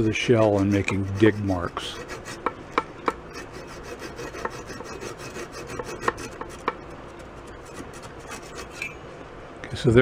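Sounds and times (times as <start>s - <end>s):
handsaw rasping through wood: 0.0s - 2.5s, 3.3s - 8.8s
saw teeth clicking: 3.1s - 8.9s.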